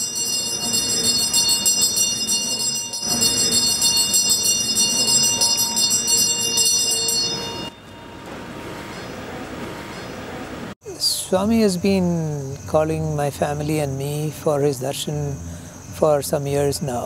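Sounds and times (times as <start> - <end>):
hand bell jangling: 0.0 - 7.7.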